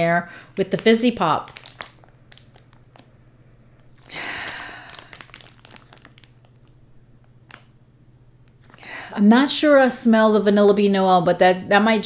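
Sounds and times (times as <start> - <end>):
plastic packaging crinkling: 0.6 - 3.2, 3.8 - 7.8, 8.5 - 8.9.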